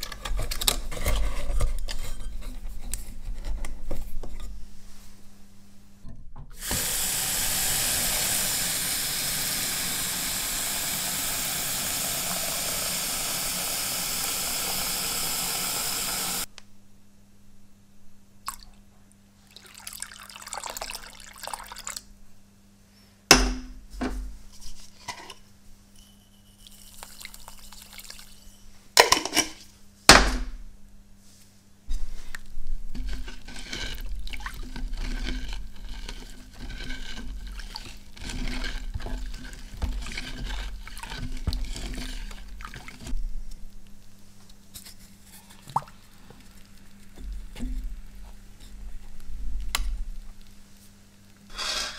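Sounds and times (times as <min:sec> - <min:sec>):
tap water running into tub: 0:06.6 - 0:16.5, 0:19.5 - 0:22.0, 0:33.0 - 0:43.2
handling noises and knocks: 0:23.3 - 0:25.4
stick stirring liquid: 0:26.6 - 0:28.6, 0:31.9 - 0:50.6.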